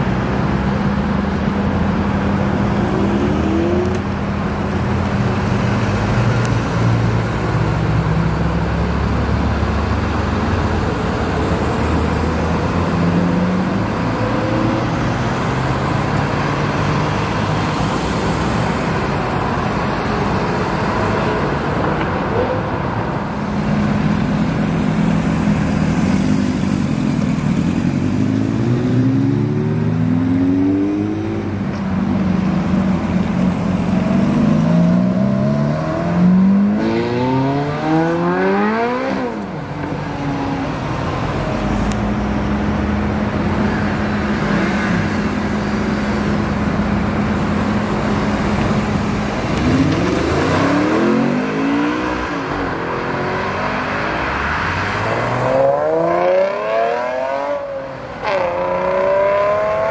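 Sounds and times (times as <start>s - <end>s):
sports car driving off: 22.8s - 59.9s.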